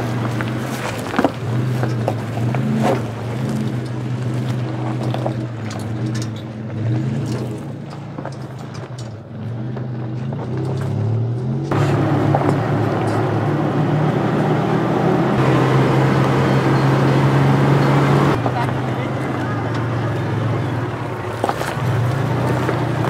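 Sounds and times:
truck engine running at low speed: 0.0s - 23.0s
tyres crunching over stones: 0.0s - 23.0s.

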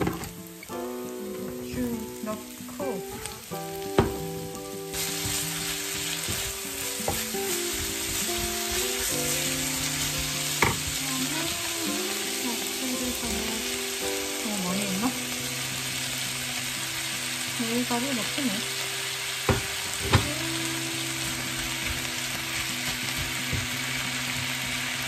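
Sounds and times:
cabbage sizzling in hot oil: 0.0s - 25.0s
wooden spoon stirring in pan: 4.9s - 15.1s.

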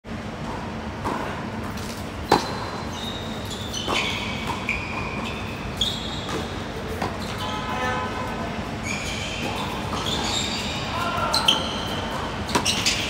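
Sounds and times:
racket hitting tennis ball: 1.0s - 2.6s
tennis shoes squeaking on court: 1.0s - 8.0s, 8.8s - 13.0s.

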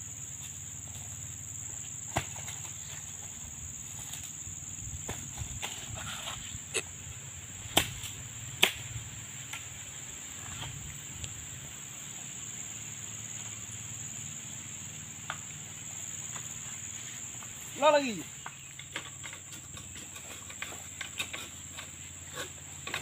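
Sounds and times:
high-pitched insect drone: 0.0s - 22.8s.

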